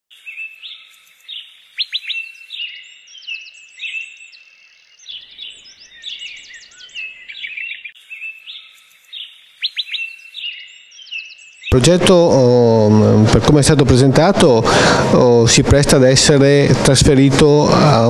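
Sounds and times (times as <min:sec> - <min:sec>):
birds chirping and singing: 0:00.1 - 0:15.0.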